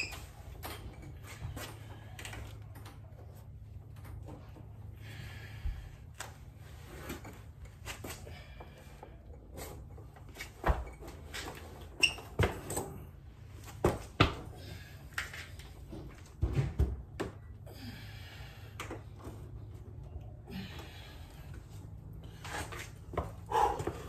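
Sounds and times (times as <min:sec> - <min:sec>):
low steady hum: 0:00.0 - 0:24.0
objects knocking and clunking: 0:15.2 - 0:17.5.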